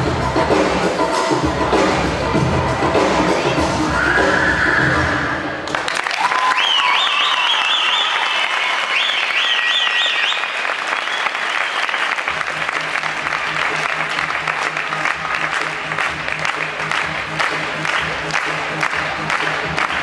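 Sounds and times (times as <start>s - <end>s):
audience applauding and cheering: 4.1s - 20.0s.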